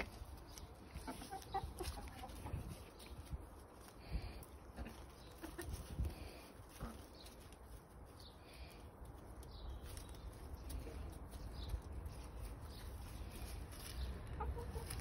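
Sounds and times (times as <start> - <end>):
hens clucking softly: 0.0 - 3.3, 4.4 - 7.6, 12.7 - 15.0.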